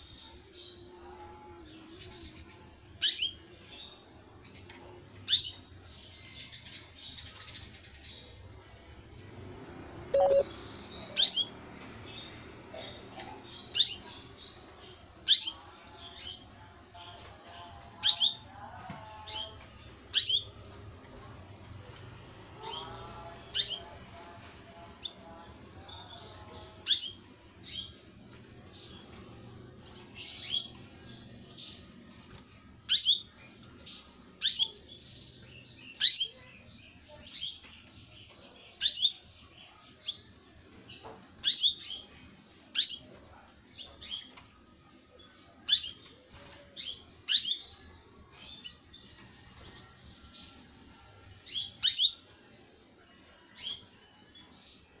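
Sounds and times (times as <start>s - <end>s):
soft bird twittering: 10.2s - 10.8s
canary chirping: 10.2s - 11.6s.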